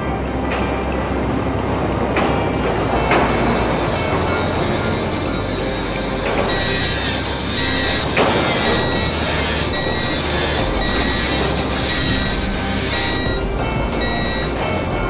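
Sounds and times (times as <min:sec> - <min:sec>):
respirator alarm beeping: 0:06.5 - 0:14.7.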